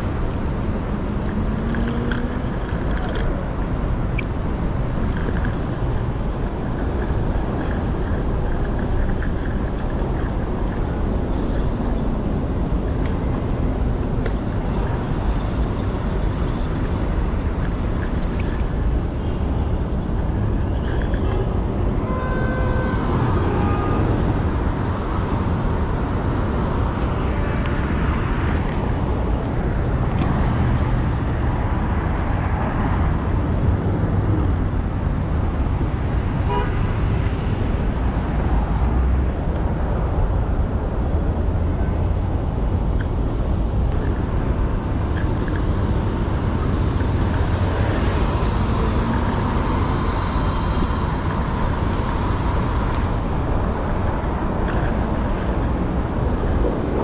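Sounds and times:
city traffic rumble: 0.0 - 57.0
car horn toot: 22.0 - 24.1, 36.4 - 36.8.

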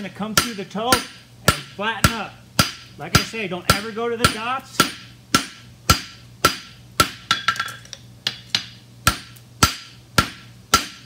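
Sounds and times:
hammer striking steel on anvil: 0.0 - 11.0.

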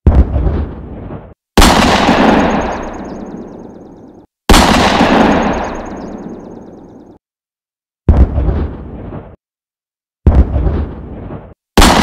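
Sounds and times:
firework shells bursting: 1.8 - 4.0, 4.7 - 7.0.

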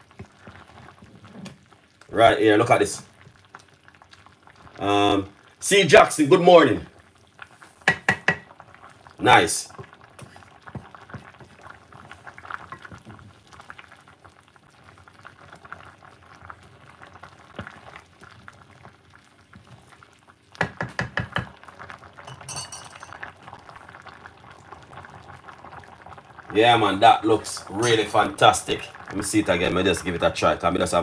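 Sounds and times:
broth bubbling at a boil: 0.0 - 31.0
wooden spoon stirring pot: 7.4 - 13.8, 19.4 - 23.6
knocks: 7.9 - 8.4, 20.6 - 21.5.

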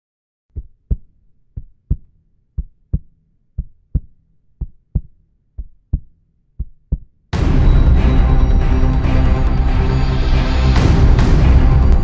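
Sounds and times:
heartbeat thumps: 0.5 - 7.1.

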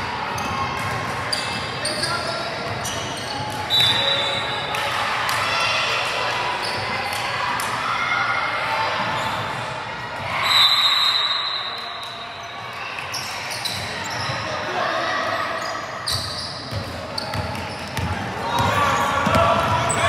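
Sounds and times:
spectators chattering and shouting: 0.0 - 20.0
basketball bouncing on court: 16.1 - 20.0.

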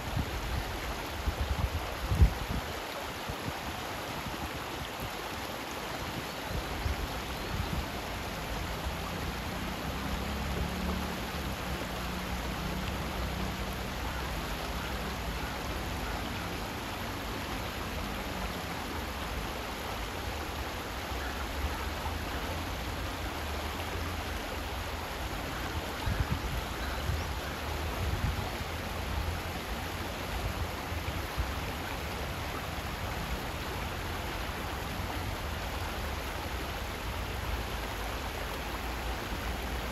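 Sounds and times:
stream rushing over rocks: 0.0 - 39.9
low water rumble: 6.4 - 20.9.

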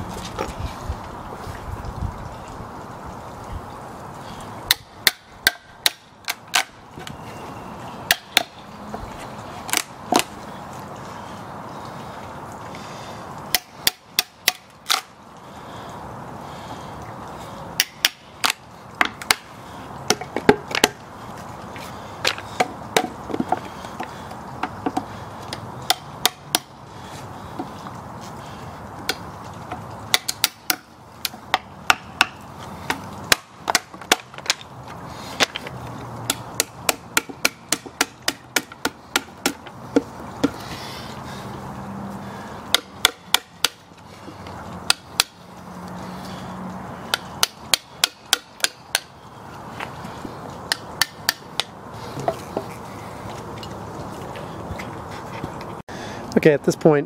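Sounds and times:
hammer striking wood chisel: 17.8 - 19.4, 31.5 - 32.4, 36.3 - 39.7, 42.7 - 43.8, 44.9 - 45.4, 47.1 - 49.1, 50.7 - 52.4.

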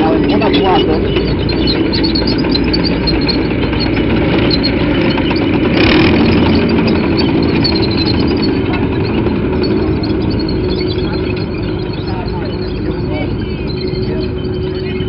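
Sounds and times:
tracked vehicle driving past: 0.0 - 15.0.

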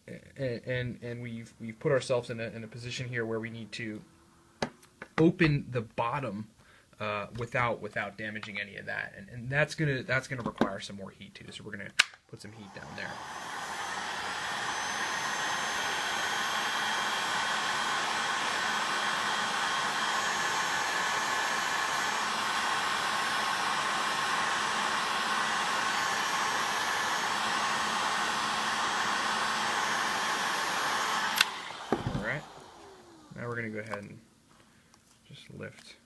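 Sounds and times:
heat gun blowing air: 12.5 - 33.4.

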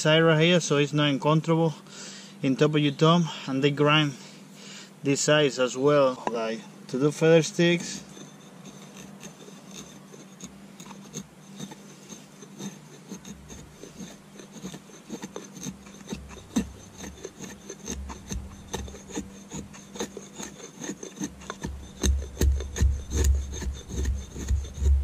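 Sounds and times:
blade scraping wood: 5.1 - 25.0.

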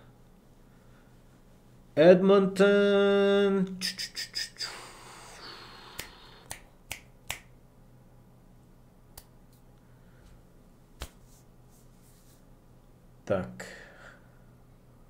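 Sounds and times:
man's drawn out voice: 2.0 - 5.5.

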